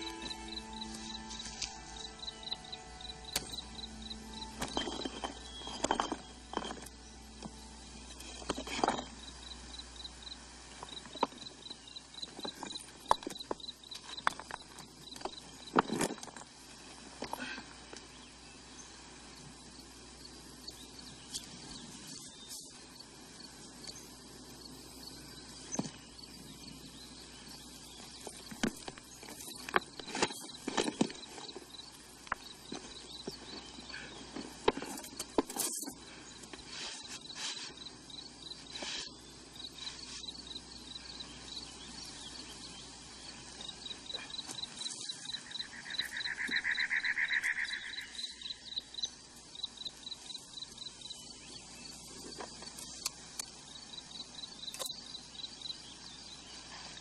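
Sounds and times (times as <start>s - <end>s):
loud buzzing trill: 0.0s - 9.6s
crickets chirping: 0.0s - 17.6s, 18.2s - 57.0s
stones and tin box knocking: 4.6s - 7.6s.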